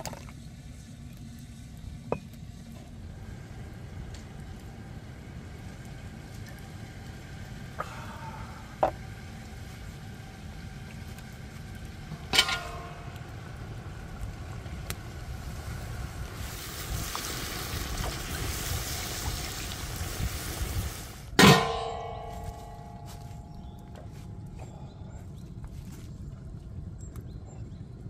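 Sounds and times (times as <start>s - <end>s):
metal lid clanging on pot: 12.3s - 13.1s, 21.4s - 22.5s
metal pot lid clinking: 12.3s - 13.1s, 21.4s - 22.1s.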